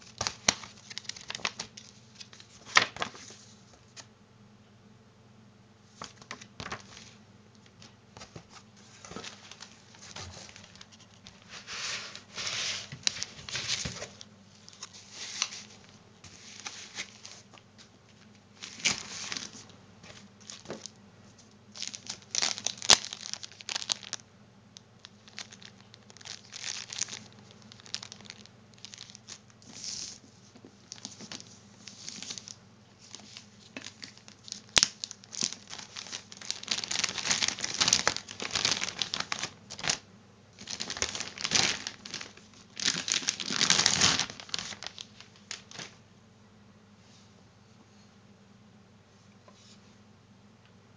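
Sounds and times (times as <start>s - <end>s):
packaging rustling: 0.0s - 3.6s, 5.9s - 7.2s, 7.8s - 17.6s, 18.2s - 20.9s, 21.7s - 24.2s, 25.0s - 30.2s, 30.9s - 40.0s, 40.6s - 46.0s
plastic bag pulled: 25.2s - 30.1s, 33.8s - 40.0s, 40.6s - 45.9s.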